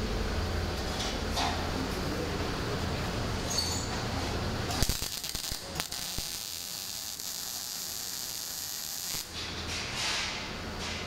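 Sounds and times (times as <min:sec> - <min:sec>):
welding arc hissing: 0:04.7 - 0:09.4.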